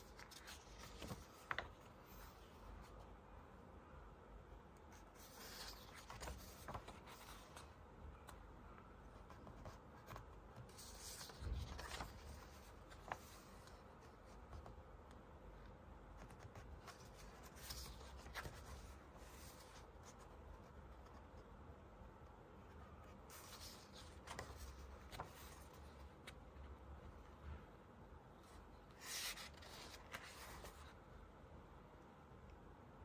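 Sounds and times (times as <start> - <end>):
book pages turning: 0.0 - 3.0, 4.9 - 8.4, 9.2 - 14.8, 16.2 - 21.4, 22.8 - 26.6, 28.8 - 31.0.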